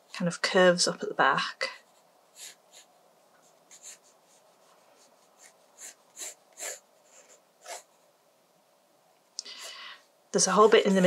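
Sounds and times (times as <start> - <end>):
pencil scratching on paper: 1.6 - 8.0.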